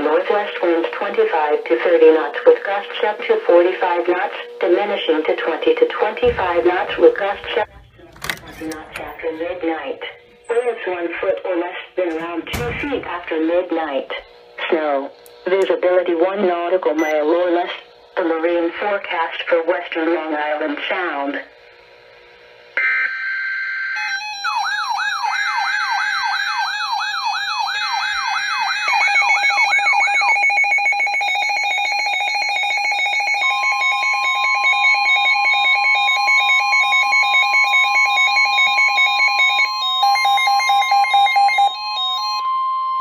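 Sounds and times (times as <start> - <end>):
steady warning alarm tone: 0.0 - 20.6, 22.8 - 43.0
whooping siren: 23.1 - 43.0.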